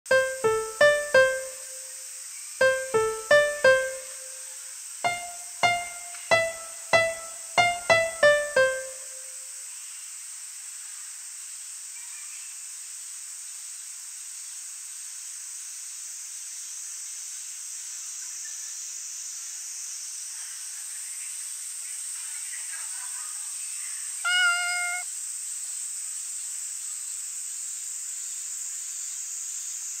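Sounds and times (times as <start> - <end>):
single piano notes: 0.1 - 1.9, 2.6 - 4.4, 5.1 - 9.3
soft steady hiss: 0.1 - 30.0
cat meowing: 24.3 - 25.0.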